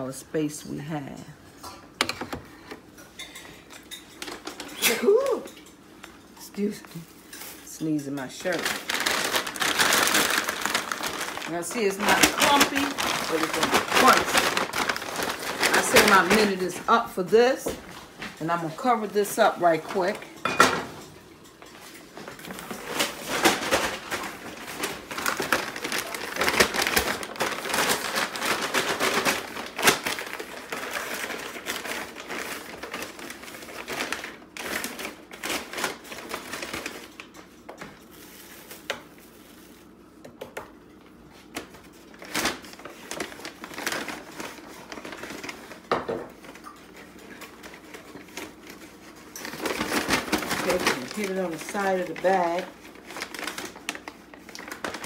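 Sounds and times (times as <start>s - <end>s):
paper bag rustling: 8.3s - 20.3s, 22.1s - 40.0s, 41.3s - 55.0s.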